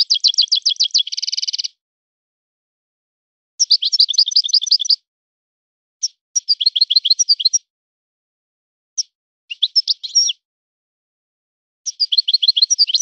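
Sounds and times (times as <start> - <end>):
goldfinch twittering song: 0.0 - 1.8, 3.6 - 5.0, 6.0 - 7.7, 9.0 - 10.4, 11.9 - 13.0.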